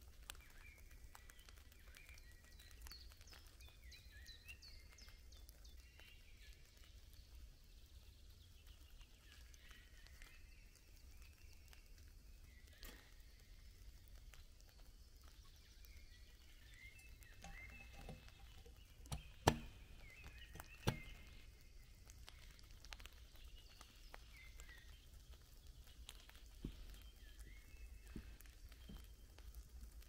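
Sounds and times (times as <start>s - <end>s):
birds chirping: 0.2s - 29.7s
sharp knocks: 19.1s - 19.8s.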